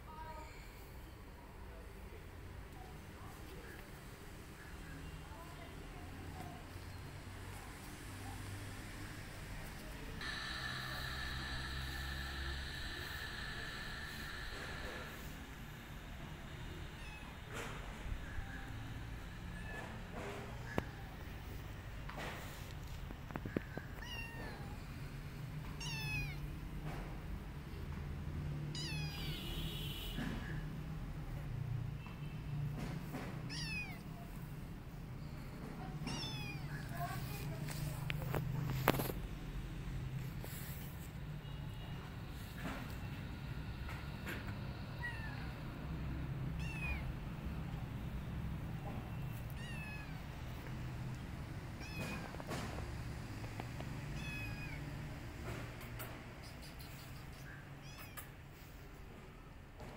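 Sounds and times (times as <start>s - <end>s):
steady low hum: 2.3s - 25.7s
kitten meowing: 17.0s - 17.4s, 24.0s - 24.8s, 25.8s - 26.4s, 28.7s - 29.5s, 33.5s - 34.0s, 36.0s - 37.1s, 46.6s - 47.1s, 49.5s - 50.2s, 51.8s - 52.4s, 54.1s - 54.9s, 57.4s - 58.3s.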